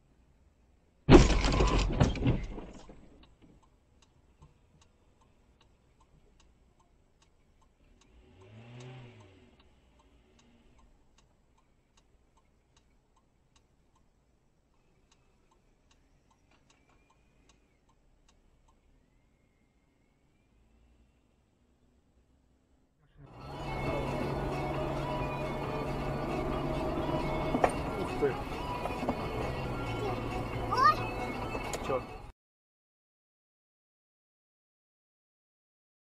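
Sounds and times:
car collision bang: 0:01.1 - 0:03.0
faint regular ticking: 0:03.2 - 0:19.0.

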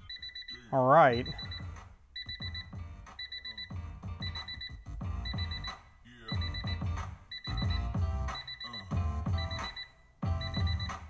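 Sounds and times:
rapid high beeps: 0:00.0 - 0:11.0
music with drum beat from car speakers: 0:01.3 - 0:11.0.

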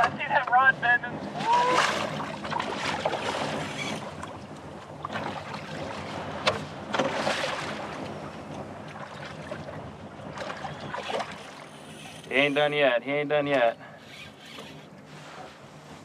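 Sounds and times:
rush of water: 0:00.0 - 0:12.4
wind on microphone: 0:00.0 - 0:12.8
water around a kayak: 0:00.0 - 0:16.0.

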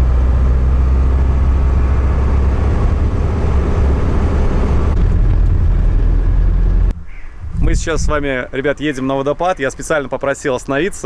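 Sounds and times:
car engine rumble: 0:00.0 - 0:08.6
road noise: 0:00.0 - 0:11.0.

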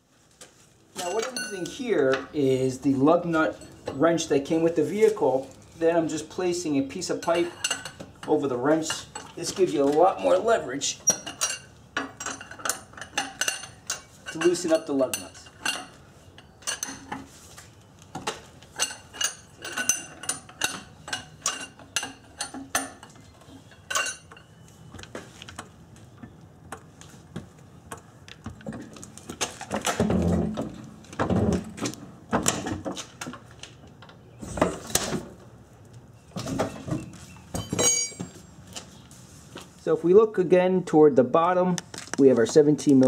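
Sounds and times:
lug wrench clinking on lug nuts: 0:07.0 - 0:09.5, 0:11.0 - 0:17.2, 0:18.8 - 0:24.6, 0:37.6 - 0:38.4.

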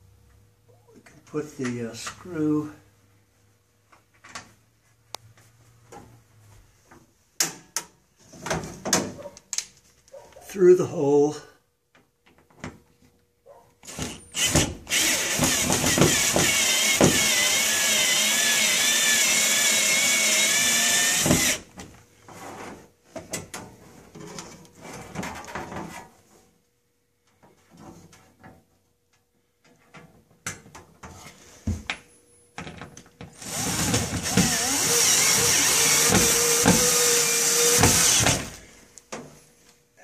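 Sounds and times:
cordless drill motor whine: 0:13.9 - 0:21.6, 0:33.4 - 0:38.6.

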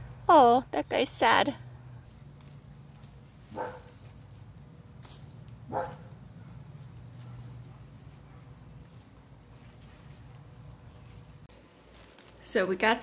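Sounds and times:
low background hum: 0:00.0 - 0:13.0
dog barking: 0:03.5 - 0:04.0, 0:05.7 - 0:08.6.

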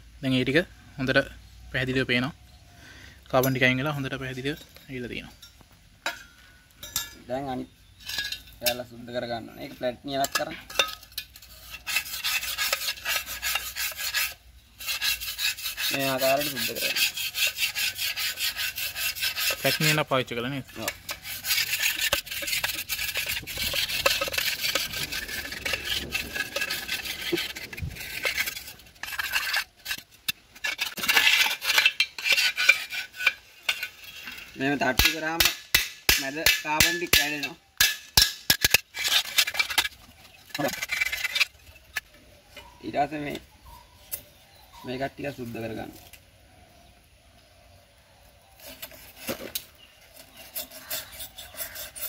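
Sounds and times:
screwdriver scraping metal pipe: 0:10.2 - 0:20.0, 0:20.7 - 0:42.7, 0:48.6 - 0:52.0.

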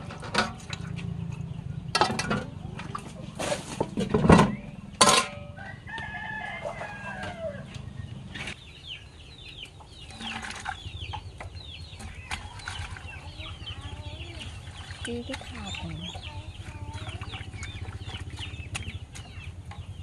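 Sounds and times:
chickens calling: 0:00.0 - 0:20.0
rooster crowing: 0:05.5 - 0:07.9.

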